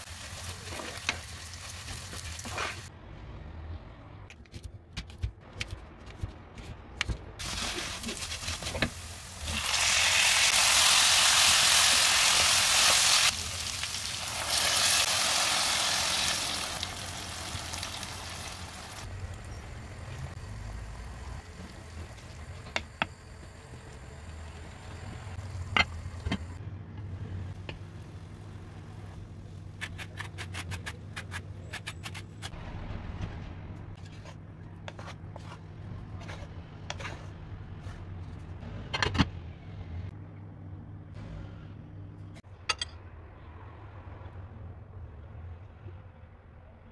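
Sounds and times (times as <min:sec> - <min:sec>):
wooden spoon stirring in pan: 0:34.1 - 0:38.0.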